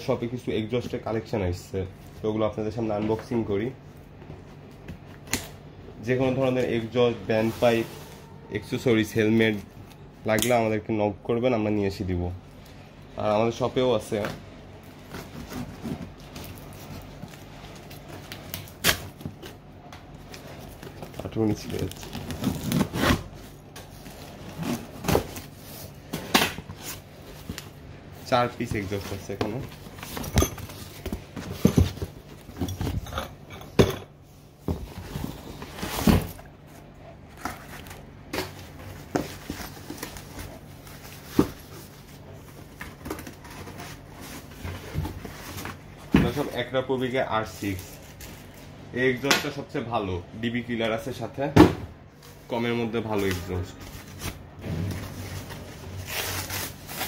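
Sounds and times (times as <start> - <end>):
cardboard rustling and scraping: 6.4 - 8.4, 15.0 - 19.6, 20.2 - 33.0, 34.6 - 46.6, 52.2 - 57.0.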